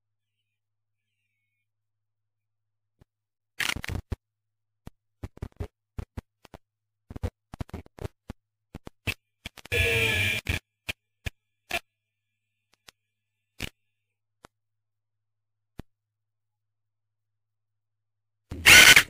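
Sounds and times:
scratchy burst: 9.7s - 10.6s, 18.5s - 19.0s.

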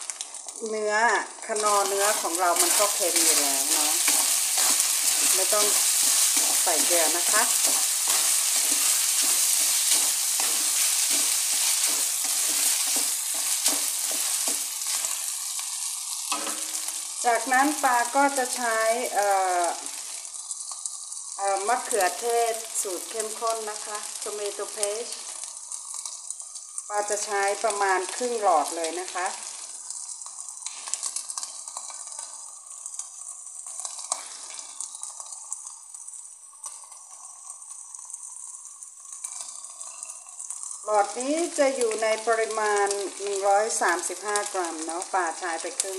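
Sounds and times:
meat sizzling in a frying pan: 0.0s - 45.9s
wooden spatula scraping a pan: 1.5s - 15.7s.

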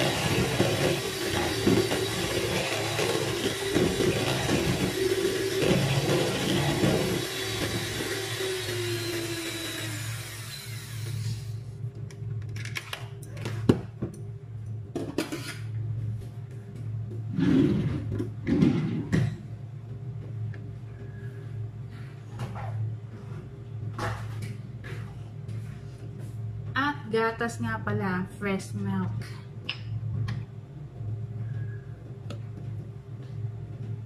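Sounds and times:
electric hand mixer beating: 0.0s - 11.5s.

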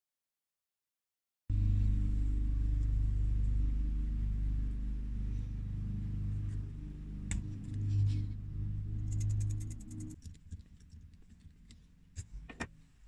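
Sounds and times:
bass-heavy background music: 1.5s - 10.2s.

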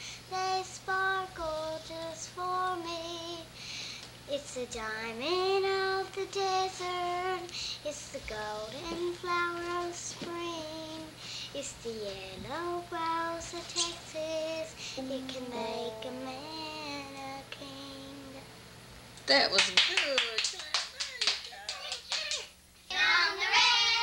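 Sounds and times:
girl singing unaccompanied: 0.0s - 3.6s, 4.3s - 18.5s, 22.9s - 24.0s.

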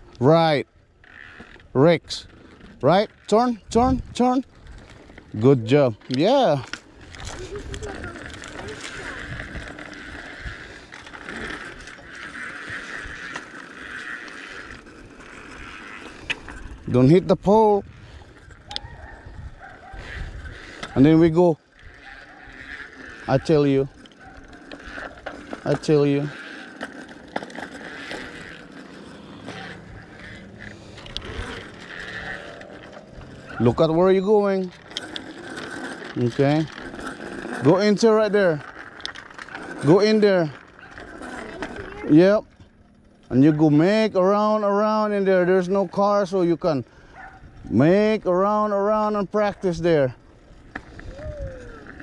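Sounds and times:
bike clicks and rattles: 0.0s - 52.0s
road and wind rumble: 0.0s - 52.0s
tyres rolling on concrete: 0.0s - 52.0s
bicycle freewheel ticking: 0.9s - 5.6s, 6.2s - 16.8s, 20.0s - 43.0s.

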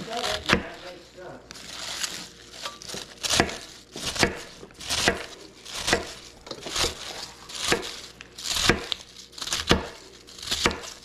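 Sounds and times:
knife chopping on cutting board: 0.2s - 0.8s, 2.9s - 11.0s.

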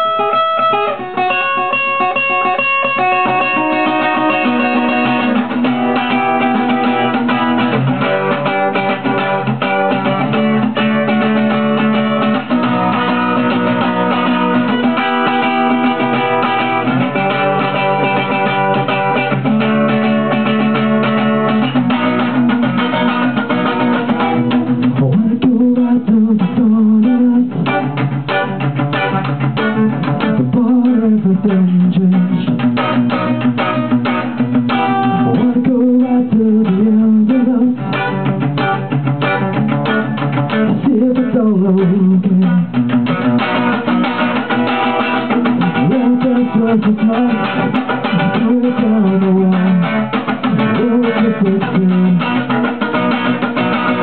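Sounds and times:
guitar strummed: 0.0s - 54.0s
young man singing: 22.7s - 33.2s, 34.7s - 38.8s, 40.1s - 43.0s, 44.8s - 54.0s.

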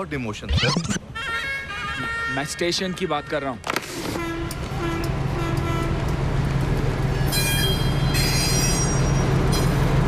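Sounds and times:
high-pitched squealing: 0.5s - 1.1s
train rumbling: 4.2s - 10.0s.

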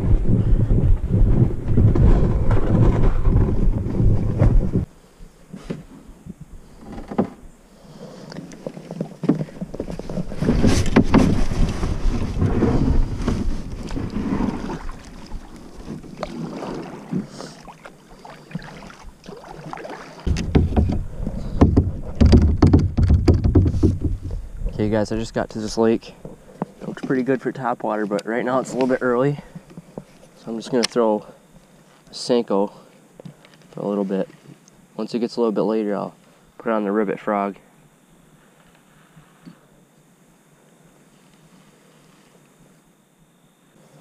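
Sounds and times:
wind buffeting microphone: 0.0s - 4.9s
paddle strokes in water: 7.8s - 24.8s
knocks on plastic hull: 20.3s - 24.4s.

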